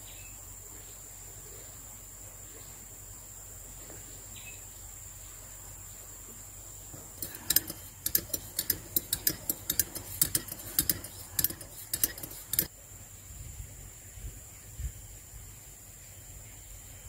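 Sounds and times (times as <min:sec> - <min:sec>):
spoon clinking in ceramic mug: 0:07.2 - 0:12.7.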